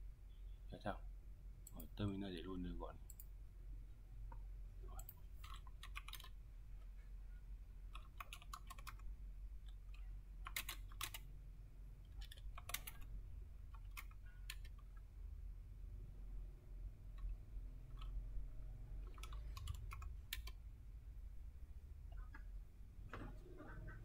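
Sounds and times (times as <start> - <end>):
steady low hum: 0.0 - 24.0
keyboard typing: 4.3 - 6.4, 7.9 - 11.3, 12.0 - 15.1, 17.0 - 18.2, 19.0 - 20.6.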